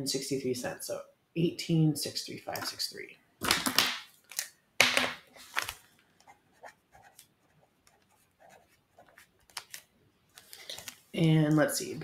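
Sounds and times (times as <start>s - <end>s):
pen scratching on paper: 6.2s - 9.5s.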